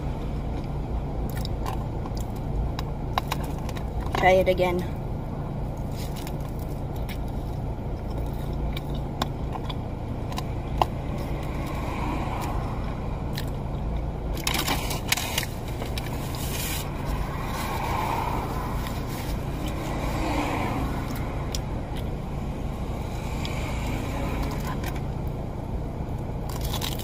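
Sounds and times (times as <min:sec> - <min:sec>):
low car rumble: 0:00.0 - 0:27.0
crunchy food chewing: 0:05.8 - 0:12.6, 0:26.4 - 0:27.0.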